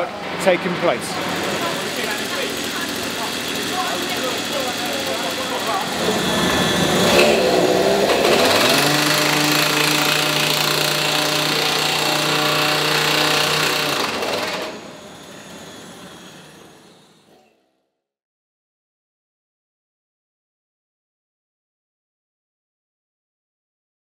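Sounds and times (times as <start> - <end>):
petrol drill boring into wood: 1.1 - 17.4.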